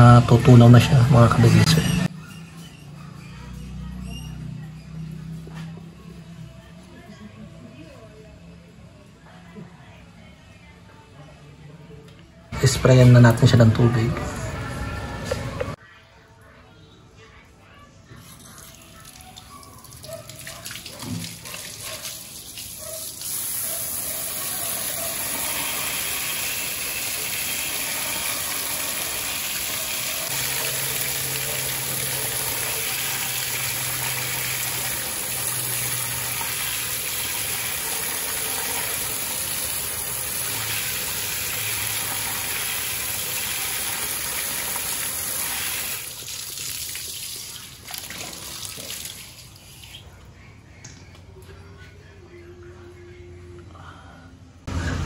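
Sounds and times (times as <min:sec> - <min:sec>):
hose water spraying on metal: 0:21.0 - 0:50.0.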